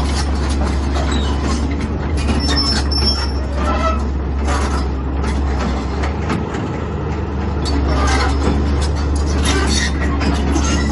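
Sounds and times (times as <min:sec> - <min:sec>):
excavator diesel engine droning: 0:00.0 - 0:10.9
short metallic squeals: 0:00.9 - 0:05.0, 0:07.6 - 0:10.9.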